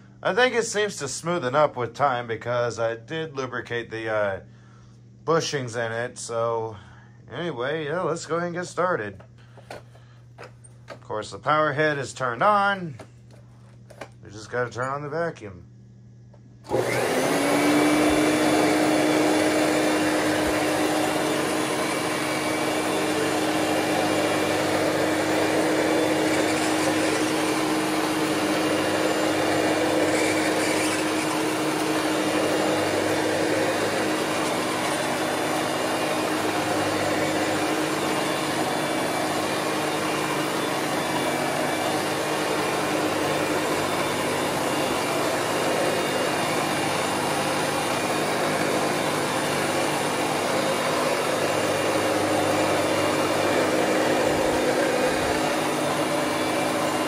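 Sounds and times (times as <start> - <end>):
vacuum cleaner motor whine: 16.3 - 57.0.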